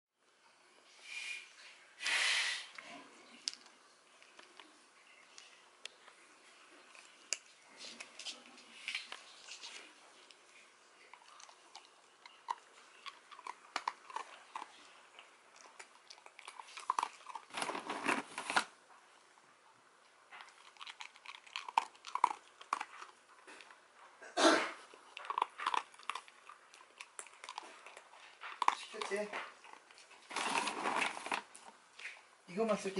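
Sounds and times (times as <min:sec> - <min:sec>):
dog crunching dry kibble: 0:06.8 - 0:18.7, 0:20.3 - 0:23.8, 0:24.8 - 0:32.8.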